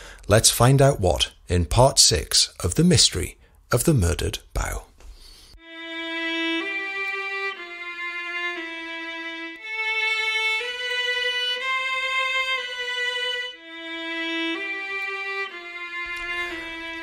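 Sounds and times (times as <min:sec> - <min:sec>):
slow violin melody: 0:05.6 - 0:17.0.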